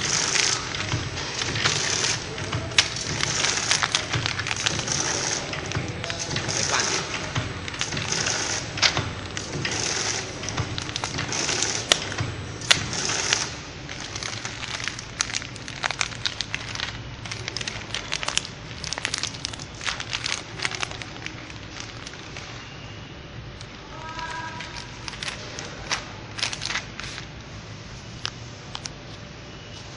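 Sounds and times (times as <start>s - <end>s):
plastic snack pouch crinkling: 2.1s - 8.2s, 8.8s - 22.6s, 23.6s - 27.4s.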